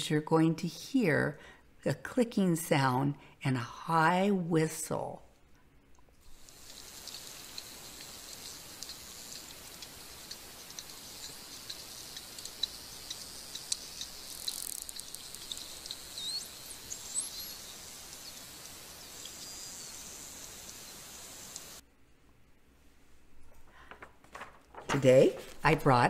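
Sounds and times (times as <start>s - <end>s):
underwater hiss: 6.2s - 21.8s
dolphin clicks: 6.6s - 17.4s
dolphin whistles: 15.4s - 18.4s.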